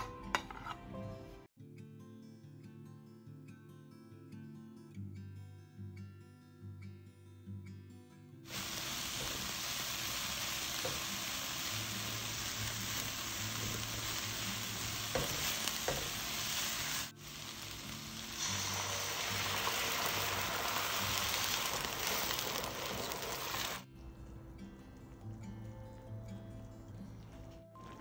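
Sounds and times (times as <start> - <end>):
water poured into hot pan: 8.5 - 14.7, 16.3 - 23.9
spatula stirring in a pan: 8.5 - 17.1
onions sizzling in a frying pan: 8.5 - 23.9.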